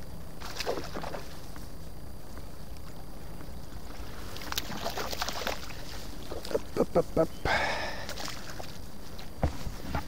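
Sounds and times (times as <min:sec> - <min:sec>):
fish splashing in water: 0:00.4 - 0:01.4, 0:04.0 - 0:06.4.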